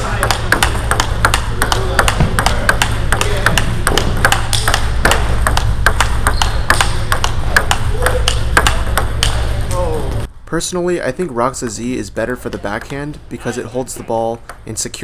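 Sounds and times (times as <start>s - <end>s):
table tennis ball clicking: 0.0s - 9.5s.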